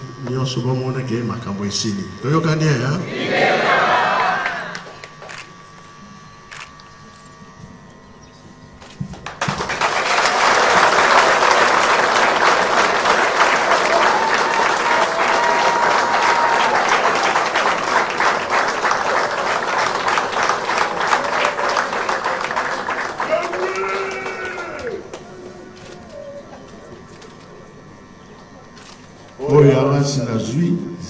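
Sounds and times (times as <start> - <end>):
large crowd applauding: 4.0 - 5.5, 9.2 - 25.9.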